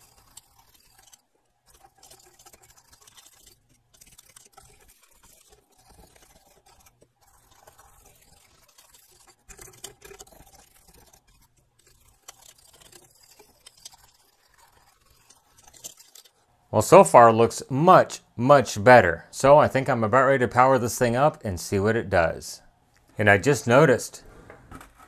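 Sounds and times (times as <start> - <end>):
brush scrubbing circuit board: 0.0 - 16.5.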